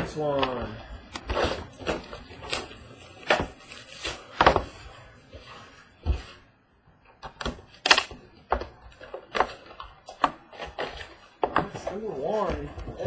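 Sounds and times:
cardboard box being unwrapped: 0.0 - 5.7.

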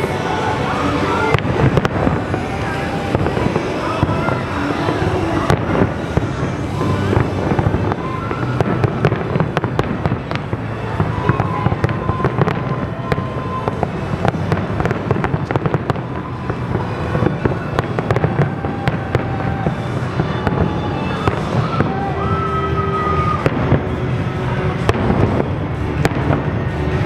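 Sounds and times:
continuous low rumble: 0.0 - 27.0
fireworks bursting: 0.0 - 27.0.

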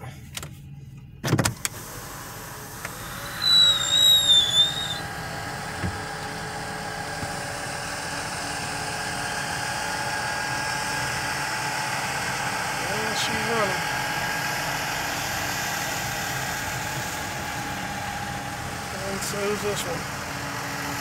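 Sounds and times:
engine running: 0.0 - 21.0
high-pitched squeal: 2.6 - 11.6.

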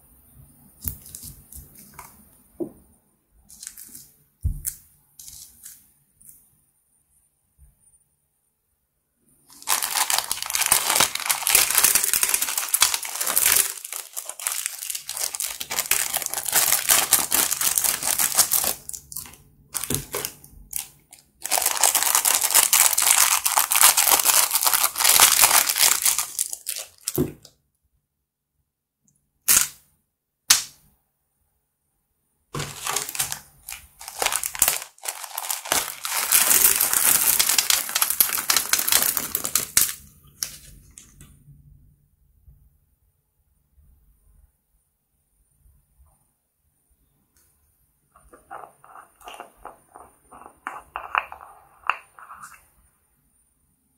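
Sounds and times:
plastic bags crinkling: 9.5 - 27.5, 32.6 - 41.1, 48.2 - 52.6.

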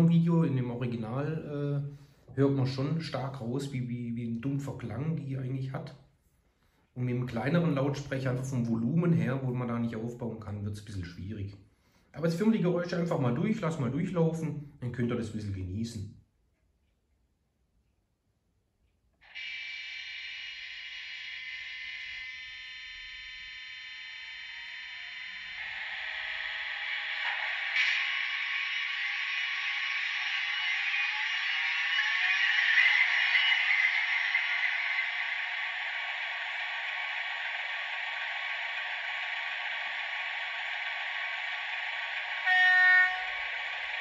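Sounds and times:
steady hiss from small speaker: 0.0 - 16.2, 19.2 - 44.0
model locomotive engine buzzing: 19.3 - 44.0
horn-like tone: 42.3 - 44.0.

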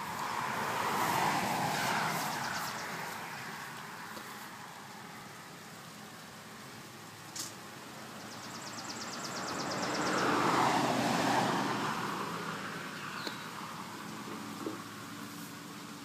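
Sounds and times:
vehicle passing by: 0.0 - 5.2, 8.4 - 15.5.

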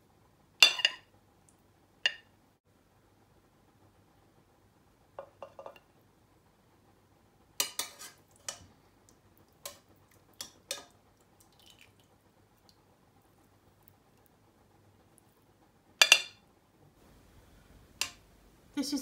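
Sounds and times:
metal spoon clinking on pot: 0.6 - 1.0, 7.6 - 8.7, 10.4 - 11.0, 16.0 - 16.4.

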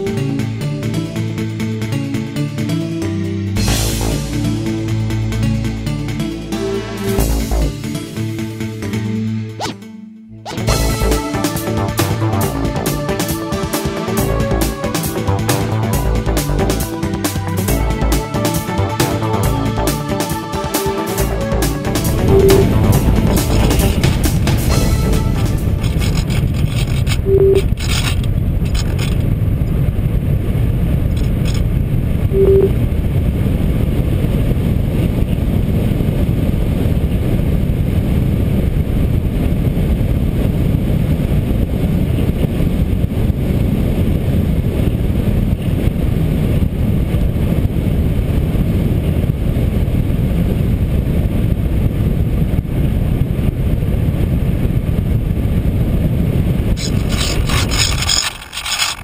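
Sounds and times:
wind rushing over camera: 22.1 - 59.0
short beeps: 22.3 - 22.7, 27.2 - 27.6, 32.3 - 32.8.

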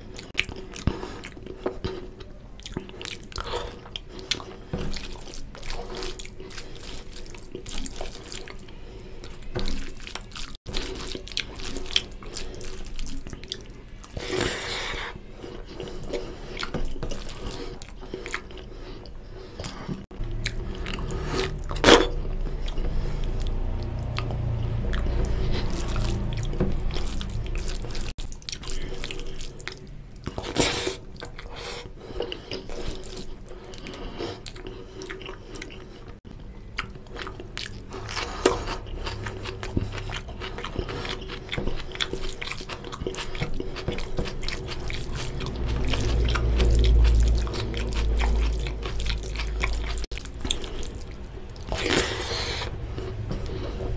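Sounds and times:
chewing: 0.0 - 53.9
low rumble: 20.1 - 28.2, 44.4 - 50.1.

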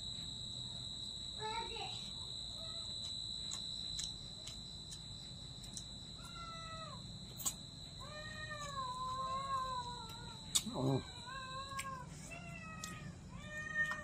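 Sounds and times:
high-pitched whine: 0.0 - 12.9
cat meowing: 8.0 - 14.0.

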